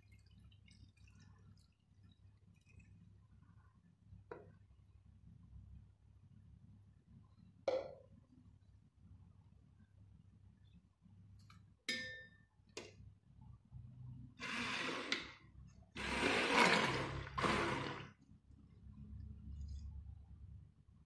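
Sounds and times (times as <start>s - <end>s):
metal clink on steel bowl: 11.9s - 12.5s
stick blender running: 14.4s - 15.3s, 16.0s - 18.2s.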